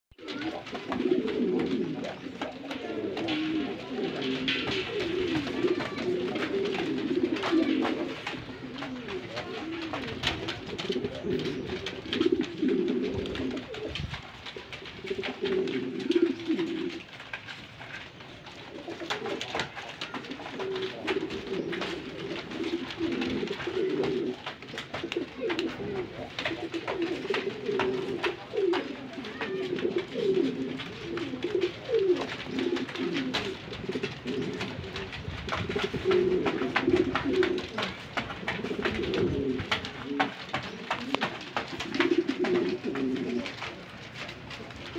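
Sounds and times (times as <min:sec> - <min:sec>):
pigeons cooing: 0:00.1 - 0:44.9.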